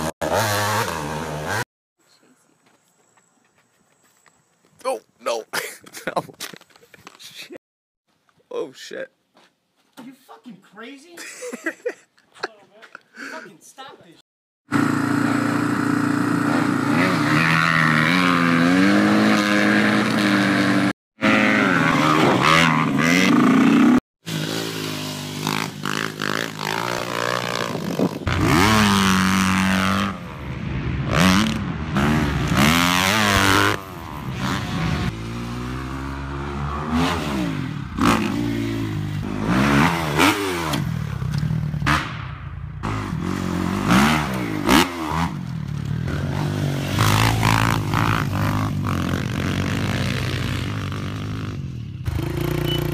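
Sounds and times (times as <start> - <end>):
dirt bike engines revving: 14.7 - 42.2, 42.8 - 52.9.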